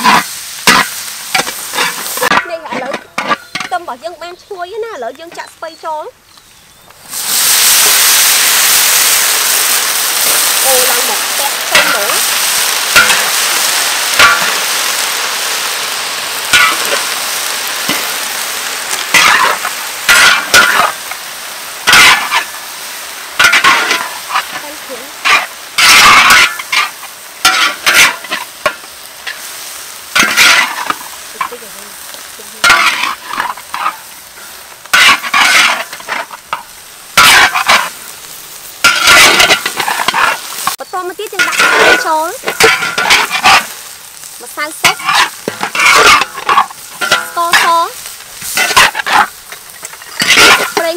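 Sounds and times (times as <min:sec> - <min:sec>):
metal spatulas scraping a pan: 0:00.0 - 0:03.8, 0:10.2 - 0:14.8, 0:16.5 - 0:17.1, 0:19.1 - 0:21.1, 0:21.8 - 0:22.6, 0:23.4 - 0:29.5, 0:30.2 - 0:31.7, 0:32.5 - 0:38.0, 0:38.8 - 0:43.8, 0:44.6 - 0:50.9
cabbage sizzling in a wok: 0:00.0 - 0:50.9.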